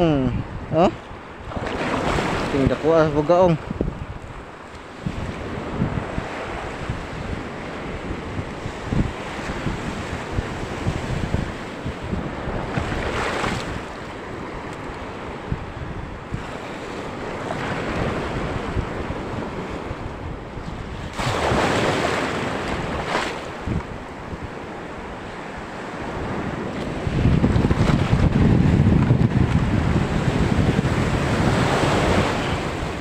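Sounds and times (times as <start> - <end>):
sea waves in strong surf: 0.0 - 33.0
wind buffeting microphone: 0.0 - 33.0.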